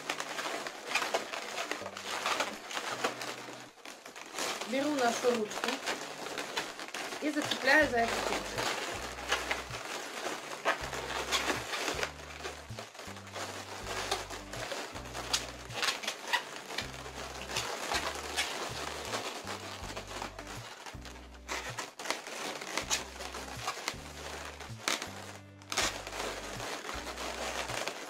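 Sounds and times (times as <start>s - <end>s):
balloons rubbing and crinkling: 0.0s - 28.0s
background music with bass line: 7.8s - 9.9s, 10.8s - 16.0s, 16.8s - 21.9s, 22.8s - 27.8s.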